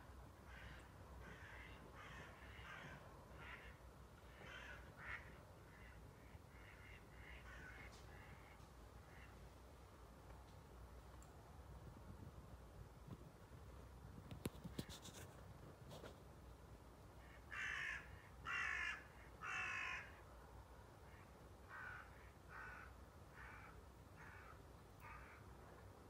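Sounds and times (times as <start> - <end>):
crow cawing: 0.5 - 9.3, 17.5 - 20.2, 21.1 - 25.5
faint clicks: 10.2 - 11.4.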